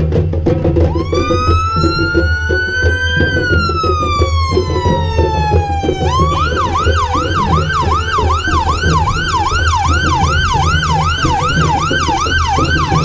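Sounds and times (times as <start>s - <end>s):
fire engine siren: 0.9s - 13.0s.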